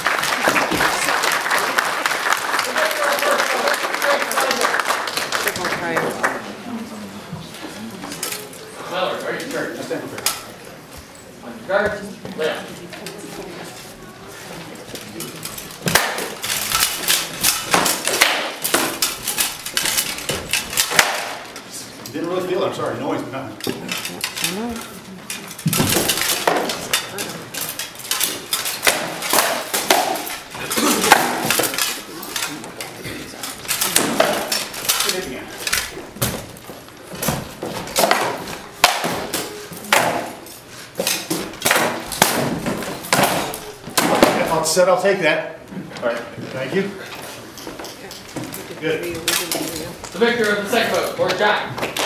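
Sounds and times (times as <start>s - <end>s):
armour clattering: 14.9s - 22.3s, 23.6s - 44.6s, 47.5s - 52.0s
rattan swords striking armour: 15.8s - 21.5s, 28.1s - 32.0s, 37.2s - 40.4s, 41.1s - 44.5s.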